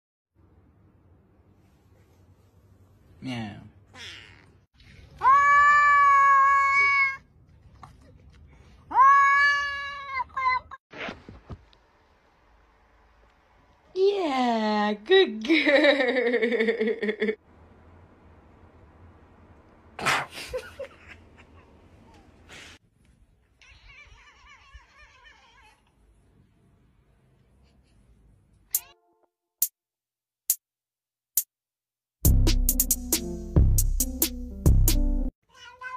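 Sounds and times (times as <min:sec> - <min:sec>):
cat yowling: 0:03.9 - 0:04.6, 0:05.2 - 0:07.3, 0:08.9 - 0:10.8, 0:23.6 - 0:25.9, 0:35.5 - 0:35.9
person laughing hard: 0:20.3 - 0:21.6.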